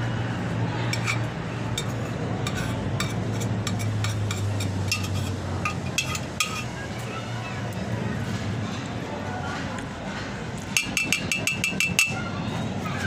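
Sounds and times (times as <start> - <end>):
spoon scraping metal pot: 0.9 - 6.7.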